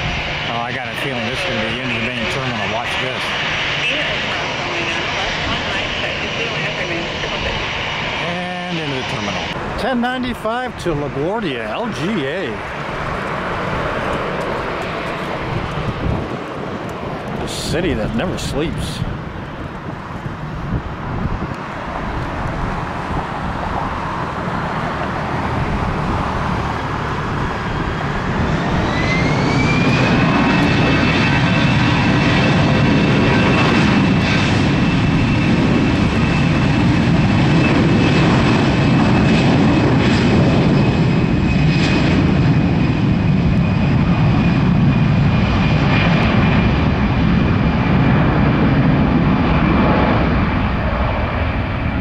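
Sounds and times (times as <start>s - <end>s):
jet engines whining: 0.0s - 52.0s.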